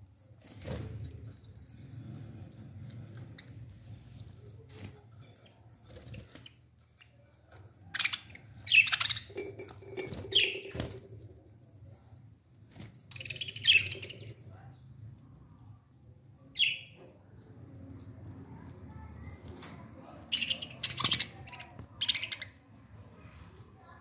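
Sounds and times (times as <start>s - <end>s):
budgerigars chirping and squawking: 7.9s - 9.6s, 10.2s - 11.0s, 13.1s - 14.5s, 20.3s - 22.6s.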